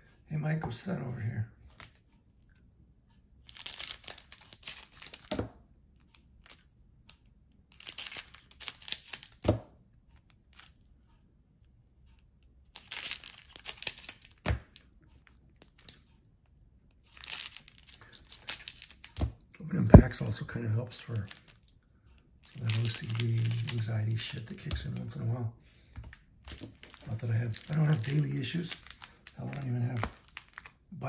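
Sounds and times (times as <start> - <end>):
cellophane wrapper crinkling: 3.5 - 5.3, 7.7 - 9.4, 12.8 - 14.4, 17.1 - 19.2, 22.4 - 25.2, 26.5 - 30.9.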